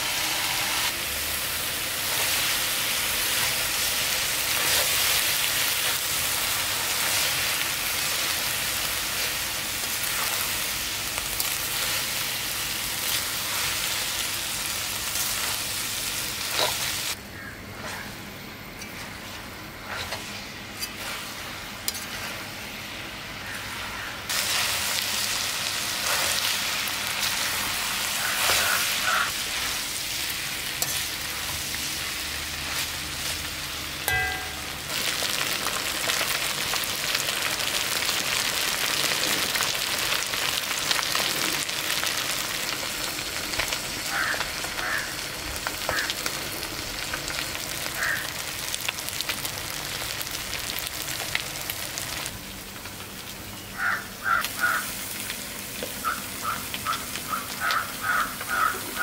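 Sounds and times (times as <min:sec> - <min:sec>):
meat sizzling in hot oil: 0:00.0 - 0:17.2, 0:20.2 - 0:59.0
metal spatula scraping: 0:18.8 - 0:22.4.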